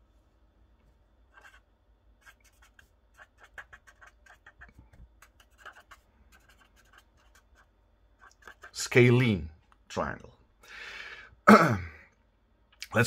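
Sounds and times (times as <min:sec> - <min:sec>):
marker writing on paper: 0:01.3 - 0:08.8.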